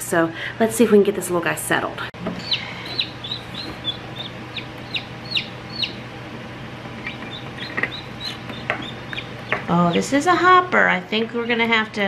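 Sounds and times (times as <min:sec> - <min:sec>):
chicks peeping: 0:02.3 - 0:10.2.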